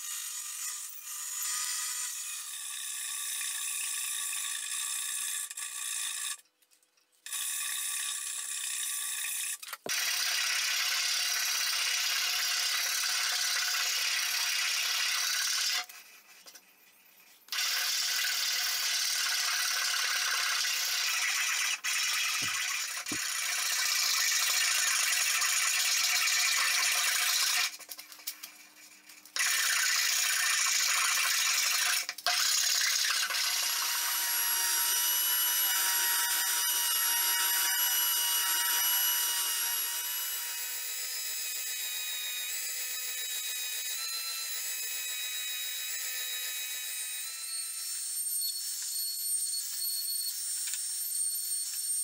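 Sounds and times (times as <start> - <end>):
woodworking machine whining: 31.8 - 52.0.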